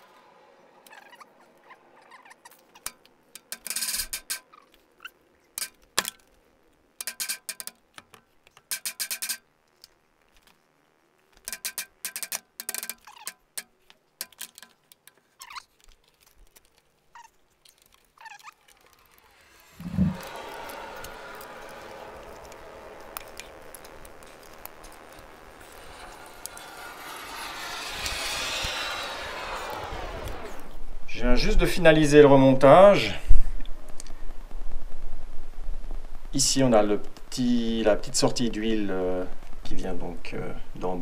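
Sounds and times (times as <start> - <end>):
rapid metallic clicking of hand tool: 7.0 - 9.4, 11.4 - 16.8
brief squeaks: 15.4 - 15.8.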